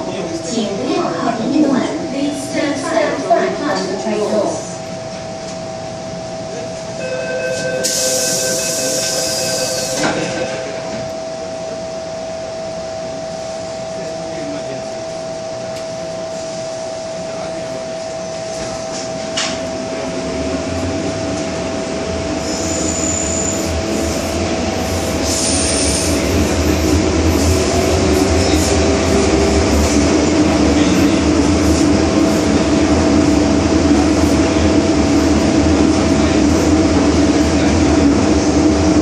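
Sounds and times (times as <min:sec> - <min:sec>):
train equipment hum: 0:00.0 - 0:39.0
train rumbling away: 0:00.0 - 0:39.0
train doors shutting: 0:06.8 - 0:11.2, 0:15.7 - 0:39.0
door-closing warning tones: 0:07.0 - 0:11.2.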